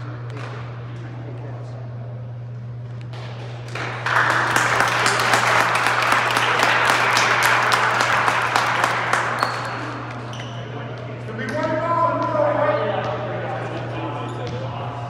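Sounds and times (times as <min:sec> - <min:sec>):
steady low hum: 0:00.0 - 0:15.0
spectators applauding: 0:03.6 - 0:10.3.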